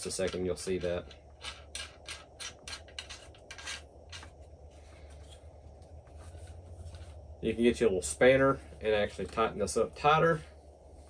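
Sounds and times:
metal threads scraping: 0:00.0 - 0:07.2.

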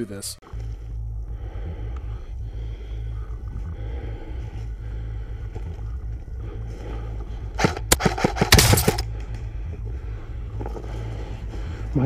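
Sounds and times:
steady low rumble: 0:00.4 - 0:12.0
sharp clicks and rattles: 0:07.6 - 0:09.4.

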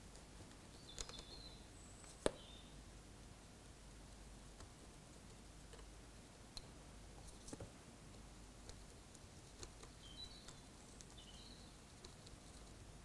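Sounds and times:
faint high chirps: 0:09.9 - 0:11.8.

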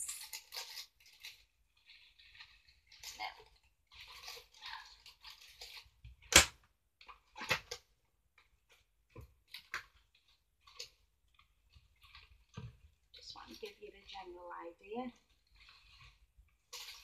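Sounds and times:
rustling: 0:00.0 - 0:06.3, 0:07.0 - 0:17.0.

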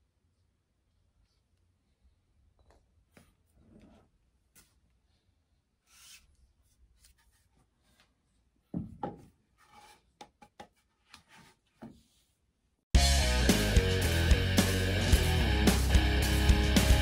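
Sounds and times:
sledgehammer set down on wooden floor: 0:08.7 - 0:09.4.

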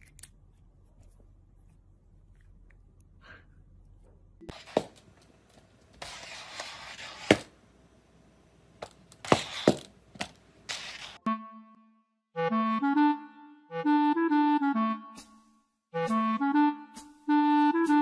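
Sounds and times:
cone collar scraping on tiles: 0:05.9 - 0:07.5, 0:08.8 - 0:11.2.

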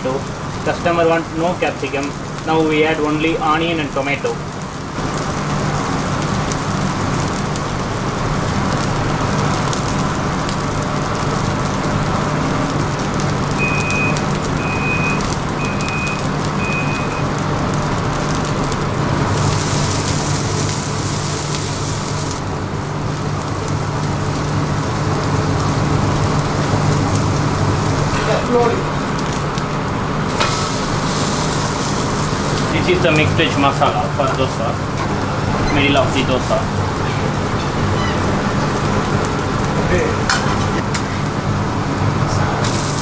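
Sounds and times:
batter sizzling on griddle: 0:00.0 - 0:43.0
short high beeps: 0:13.6 - 0:17.2
loud hiss: 0:19.2 - 0:22.5, 0:30.2 - 0:36.7, 0:42.6 - 0:43.0.

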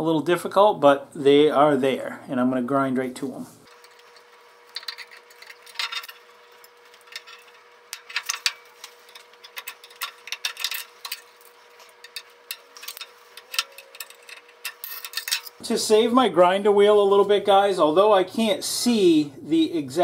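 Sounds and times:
faint steady hum: 0:00.0 - 0:20.0
steel scribe scraping metal: 0:03.6 - 0:15.6
small metal clinks: 0:03.7 - 0:15.6.

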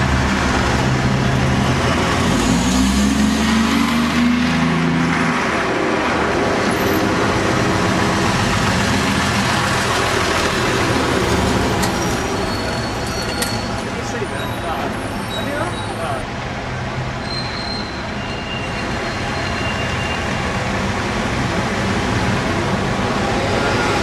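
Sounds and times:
buses passing in traffic: 0:00.0 - 0:24.0
high-pitched squeaks: 0:11.8 - 0:16.2.

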